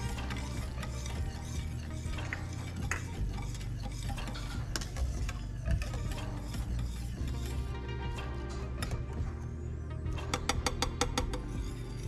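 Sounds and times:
wire whisk scraping a pan: 0.0s - 9.0s, 10.4s - 12.0s.

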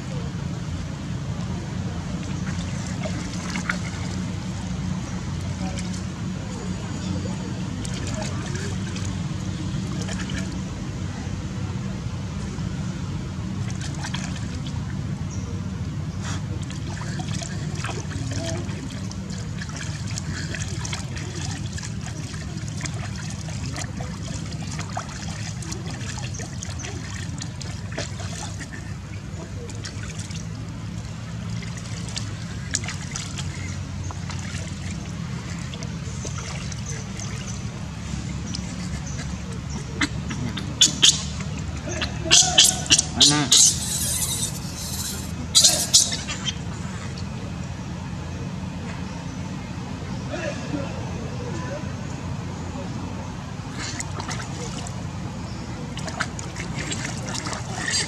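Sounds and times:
water splashing into basin: 13.6s - 15.0s, 16.6s - 28.9s, 29.6s - 46.4s, 53.8s - 55.0s, 55.8s - 58.0s.

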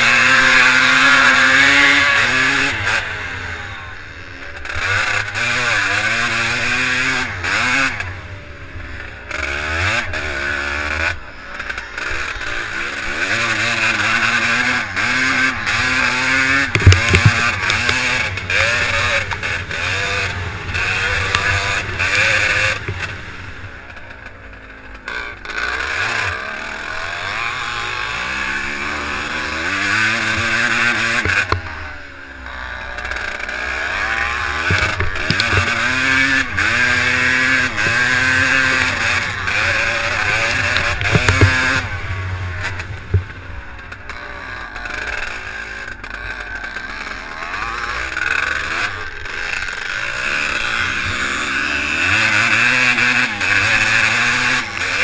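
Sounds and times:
motocross bike engine revving: 0.0s - 55.0s
sharp knocks: 16.7s - 18.0s, 34.6s - 35.9s, 37.6s - 41.9s.

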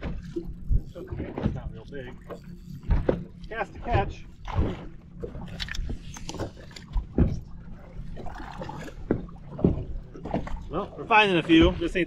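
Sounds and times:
water lapping against boat hull: 0.0s - 12.0s
dull knocks on boat: 6.4s - 7.5s, 9.0s - 10.7s.

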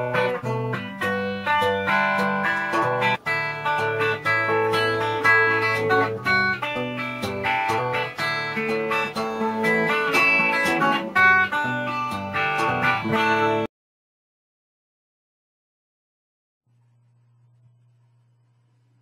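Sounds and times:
guitar music: 0.0s - 13.7s.

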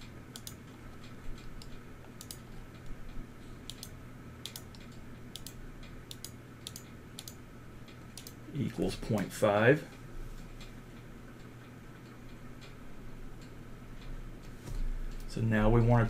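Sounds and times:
low steady hum: 0.0s - 16.0s
computer mouse clicking: 0.3s - 2.9s, 3.7s - 8.4s.

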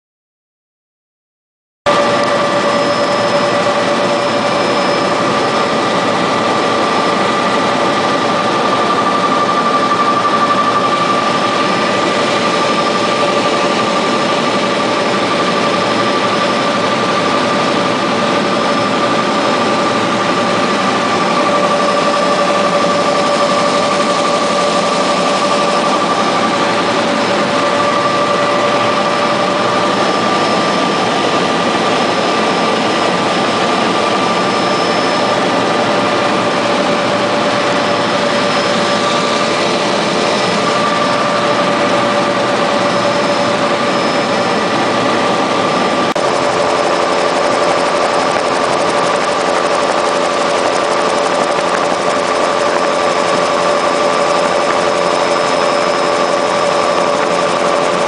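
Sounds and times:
helicopter turbine roar and whine: 1.9s - 58.0s.

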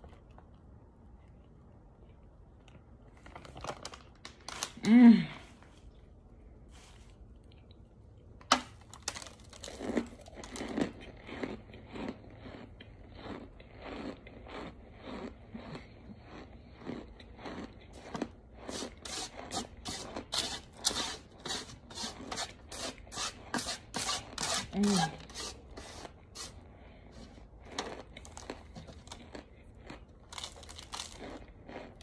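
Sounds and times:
crunchy chewing: 8.9s - 22.3s, 25.4s - 32.0s
crunchy bite: 27.6s - 32.0s.

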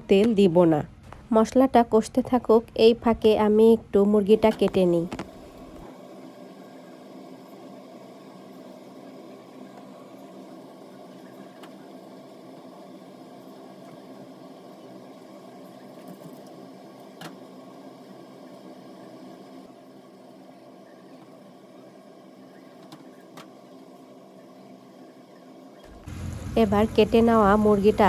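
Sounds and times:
small motor humming: 25.9s - 28.0s.

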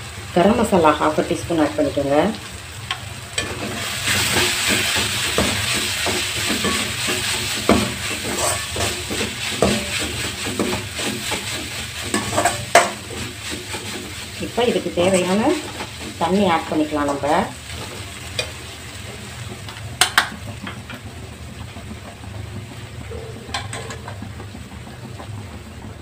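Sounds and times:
vegetables sizzling in oil: 0.0s - 26.0s
metal ladle scraping pan: 3.4s - 18.6s.

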